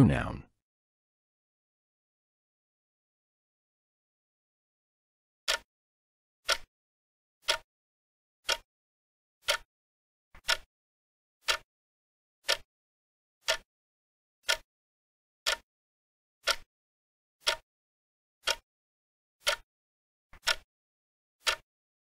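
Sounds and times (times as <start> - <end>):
clock ticking: 5.5 - 5.7, 6.4 - 6.7, 7.4 - 7.7, 8.4 - 8.7, 9.4 - 9.7, 10.4 - 10.7, 11.4 - 11.7, 12.4 - 12.7, 13.4 - 13.7, 14.4 - 14.7, 16.4 - 16.7, 17.4 - 17.6, 18.4 - 18.6, 19.4 - 19.6, 20.4 - 20.6, 21.4 - 21.6.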